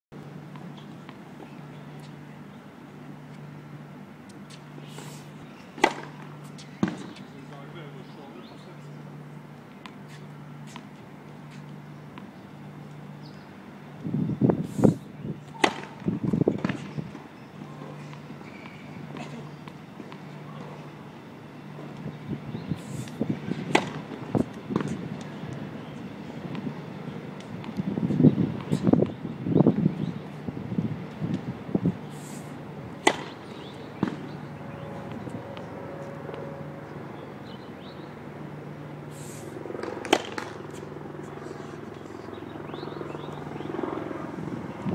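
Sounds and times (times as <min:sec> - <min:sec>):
steady low hum: 0:00.1 - 0:44.9
racket hitting tennis ball: 0:05.8 - 0:07.2, 0:15.4 - 0:17.0, 0:23.0 - 0:25.3, 0:32.9 - 0:34.4, 0:39.8 - 0:40.9.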